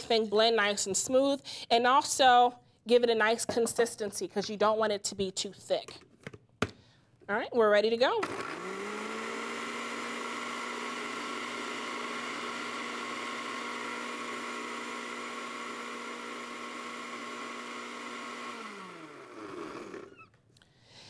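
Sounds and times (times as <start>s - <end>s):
blender running: 8.2s - 20.4s.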